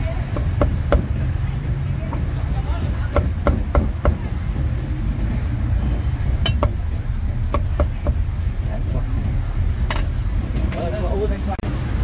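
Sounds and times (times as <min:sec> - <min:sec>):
low rumble of street traffic: 0:00.0 - 0:12.0
cleaver chopping on wooden block: 0:03.1 - 0:04.3.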